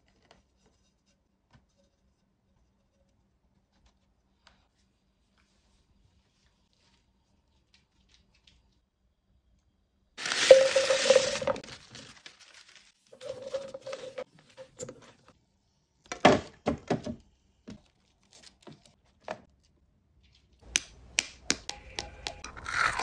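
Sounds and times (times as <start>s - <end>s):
food sizzling in hot oil: 10.2s - 11.6s
sharp taps and clicks: 20.7s - 22.4s.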